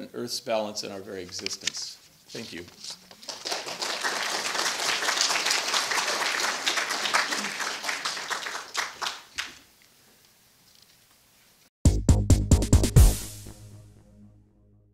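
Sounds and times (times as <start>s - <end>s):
audience applauding: 3.2s - 9.6s.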